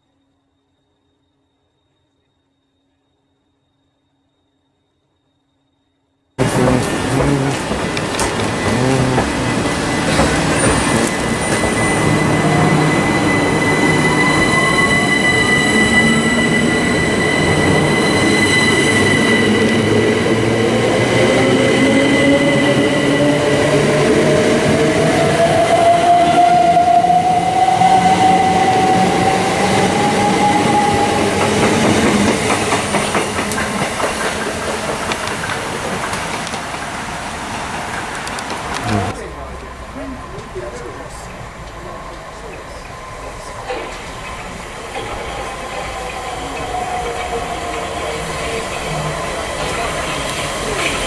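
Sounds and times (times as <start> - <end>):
wheel and rail rumble: 6.4 - 14.5, 30.0 - 51.0.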